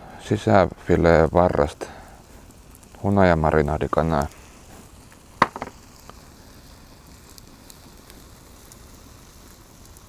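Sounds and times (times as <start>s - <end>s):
chicken skewers sizzling: 0.0s - 10.0s
short knock: 5.4s - 5.7s.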